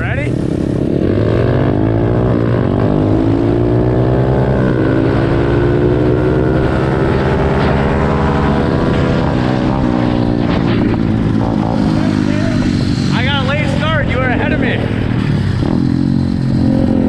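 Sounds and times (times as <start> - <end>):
small motorbike engines revving: 0.0 - 17.0
wind buffeting on microphone: 6.7 - 13.9.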